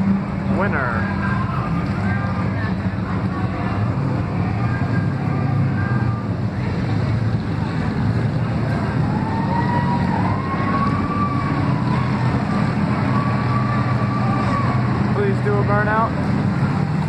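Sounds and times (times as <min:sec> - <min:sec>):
race car engine rumbling: 0:00.0 - 0:17.0.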